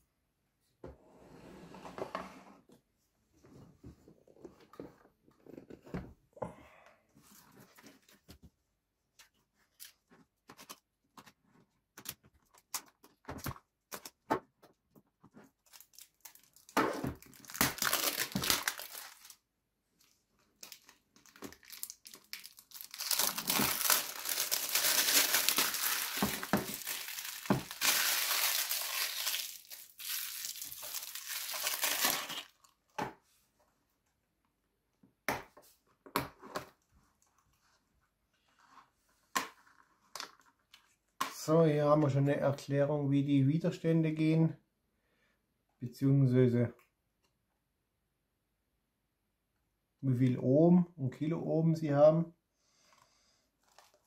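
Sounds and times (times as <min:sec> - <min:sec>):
plastic film crinkling and tearing: 0:15.5 - 0:19.4, 0:20.4 - 0:32.7, 0:53.6 - 0:54.0.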